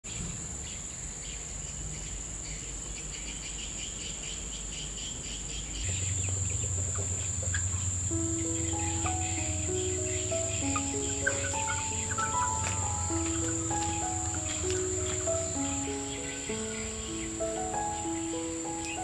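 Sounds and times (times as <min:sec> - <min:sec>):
insect chirping: 0:00.6 - 0:19.0
high-pitched insect drone: 0:07.5 - 0:19.0
melodic instrumental tune: 0:08.0 - 0:19.0.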